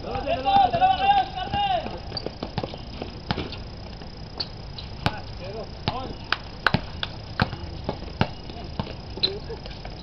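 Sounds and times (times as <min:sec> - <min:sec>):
basketball bouncing on concrete: 0:00.0 - 0:03.6, 0:04.4 - 0:05.2, 0:05.8 - 0:09.2.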